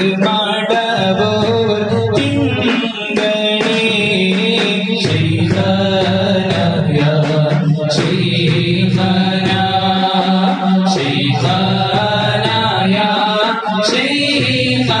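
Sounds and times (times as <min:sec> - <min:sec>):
man chanting a devotional song: 0:00.0 - 0:15.0.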